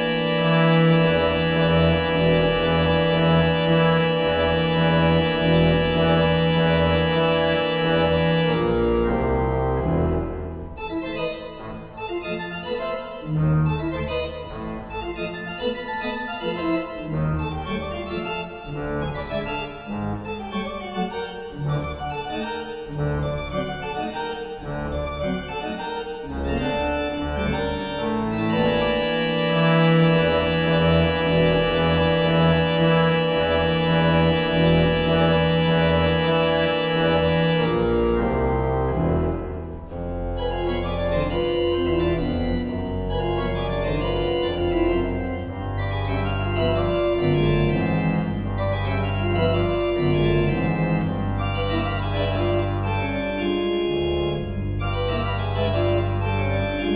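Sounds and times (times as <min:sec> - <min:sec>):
pipe organ playing: 0:00.0 - 0:56.9.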